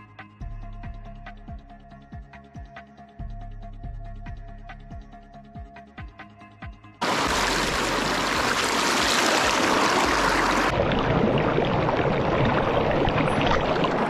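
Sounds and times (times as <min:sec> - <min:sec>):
stream splashing over stones: 0:07.0 - 0:14.0.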